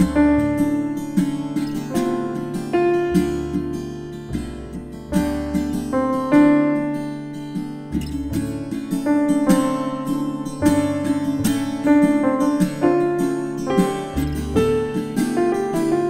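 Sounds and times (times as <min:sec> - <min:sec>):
plucked acoustic guitar music: 0:00.0 - 0:16.0.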